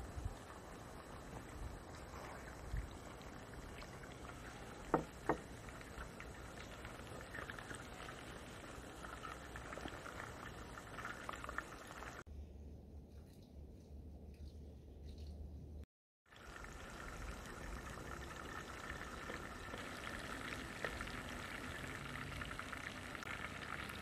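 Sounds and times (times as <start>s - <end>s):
chicken sizzling in oil: 16.3s - 24.0s.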